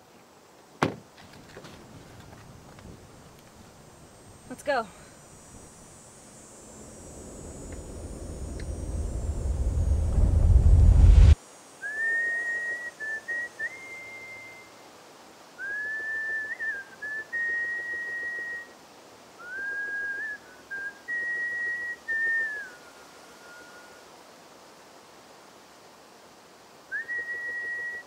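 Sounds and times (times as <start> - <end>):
person whistling a slow tune: 11.8 - 14.7, 15.6 - 18.8, 19.4 - 22.8, 26.9 - 28.0.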